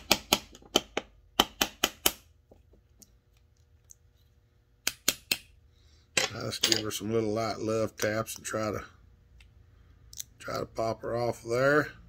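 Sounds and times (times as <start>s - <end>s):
small hammer tapping metal: 0.0s - 2.2s, 4.8s - 5.5s.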